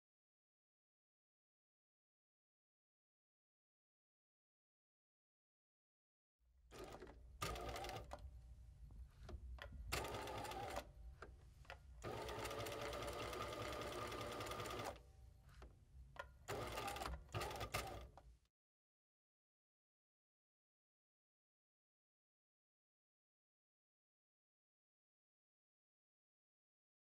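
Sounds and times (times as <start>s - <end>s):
sewing machine stitching: 6.7s - 8.2s, 9.9s - 10.9s, 12.0s - 15.0s, 16.2s - 18.2s.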